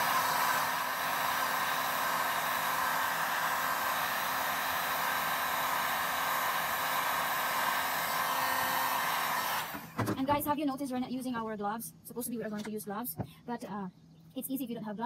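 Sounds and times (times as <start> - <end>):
heat gun fan blowing: 0.0 - 10.1.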